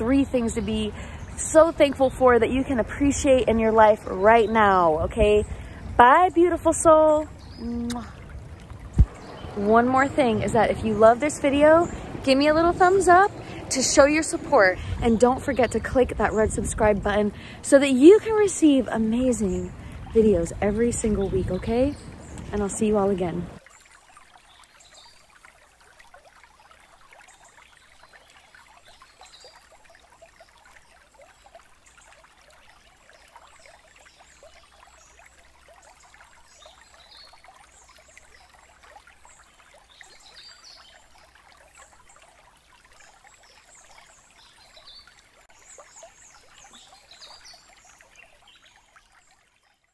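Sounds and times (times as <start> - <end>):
birds chirping: 0.0 - 23.6.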